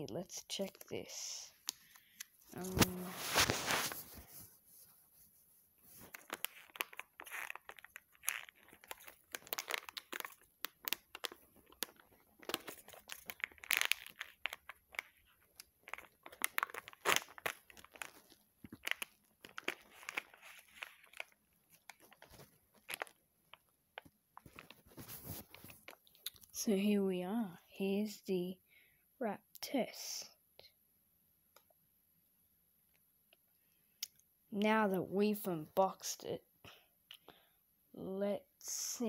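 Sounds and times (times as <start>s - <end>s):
packaging torn and crinkled: 6.0s - 26.5s.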